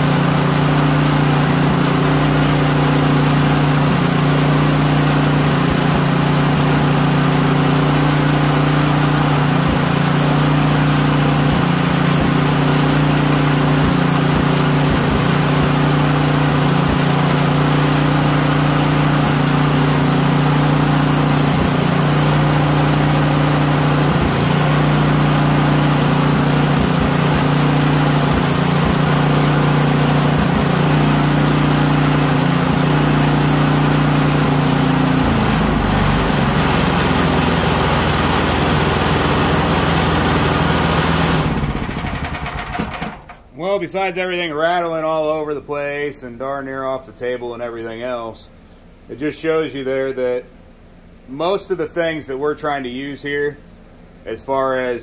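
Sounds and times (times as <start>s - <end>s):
small gasoline engine running: 0.0s - 43.5s.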